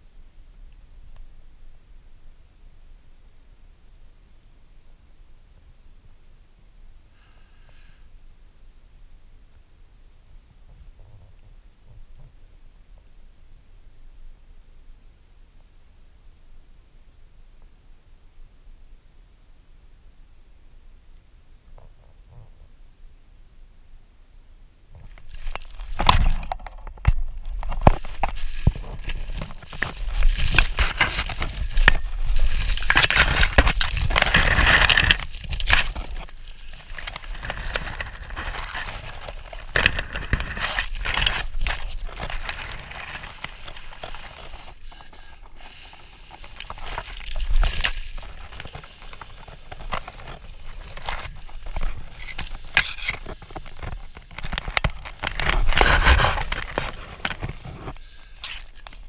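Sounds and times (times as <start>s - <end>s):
dry leaves and twigs crackling: 25.0s - 59.0s.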